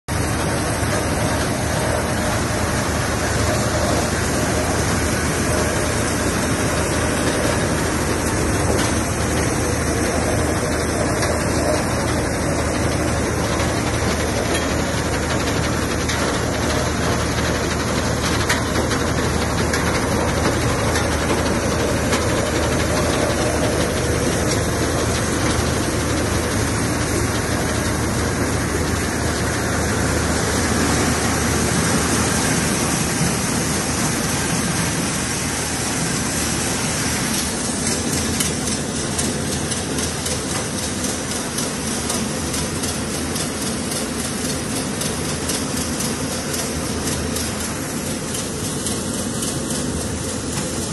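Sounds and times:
low tractor engine hum: 0:00.1 - 0:50.9
thresher mechanical din: 0:00.1 - 0:50.9.

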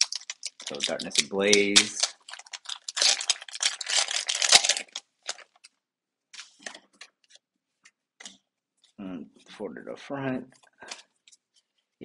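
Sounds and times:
foil wrapper tearing open: 0:00.0 - 0:05.7
cards and wrapper rustling: 0:00.0 - 0:05.8, 0:06.4 - 0:07.4.

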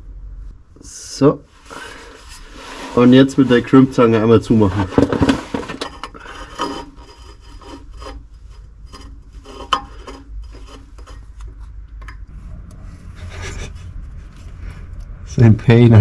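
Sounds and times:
metal tool rubbing wire: 0:02.3 - 0:11.4.

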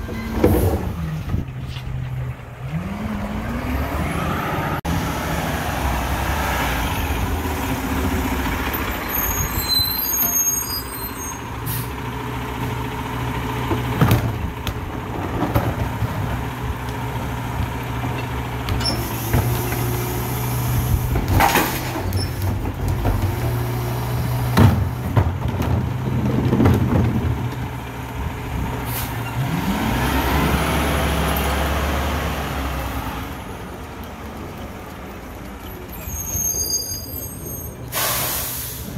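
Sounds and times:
air brakes hissing: 0:09.1 - 0:12.0, 0:36.0 - 0:38.9
carts knocking against hopper: 0:24.5 - 0:27.7.

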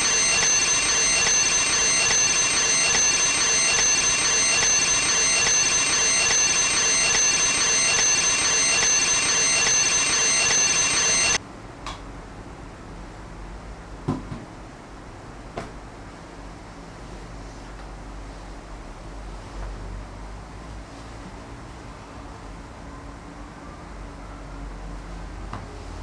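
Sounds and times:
alarm clock bell ringing: 0:00.0 - 0:11.4.

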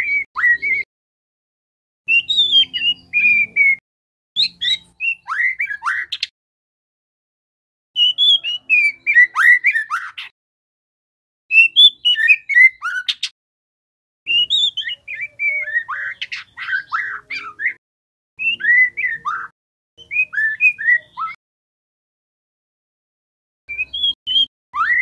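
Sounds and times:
bird singing whistled notes: 0:00.0 - 0:00.9, 0:02.1 - 0:03.8, 0:04.4 - 0:06.3, 0:08.0 - 0:10.3, 0:11.5 - 0:13.3, 0:14.3 - 0:17.8, 0:18.4 - 0:21.4, 0:23.7 - 0:25.0.

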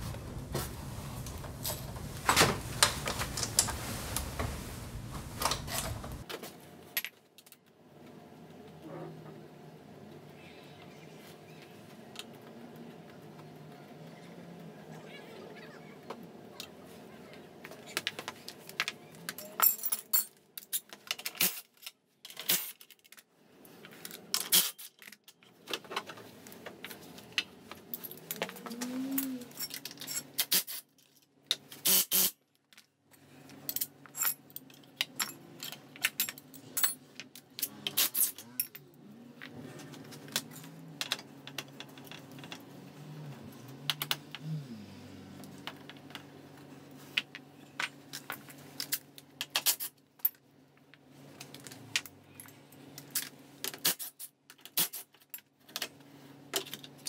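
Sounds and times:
metal tools clinking on concrete: 0:18.8 - 0:23.2, 0:27.9 - 0:31.3, 0:33.6 - 0:38.9.

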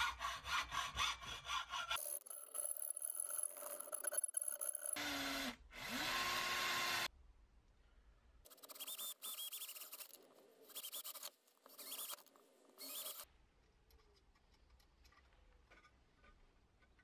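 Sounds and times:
power drill whining: 0:04.6 - 0:07.1.

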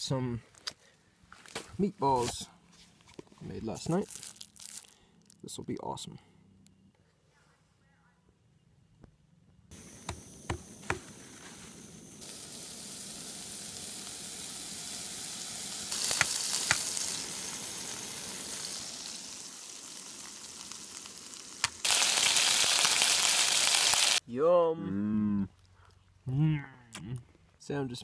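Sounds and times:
meat sizzling in frying pan: 0:11.8 - 0:24.2.

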